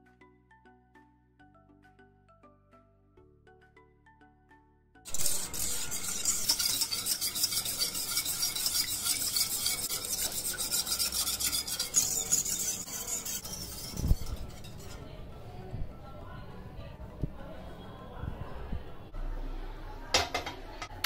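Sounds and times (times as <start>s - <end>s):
whisk scraping a saucepan: 5.1s - 15.2s.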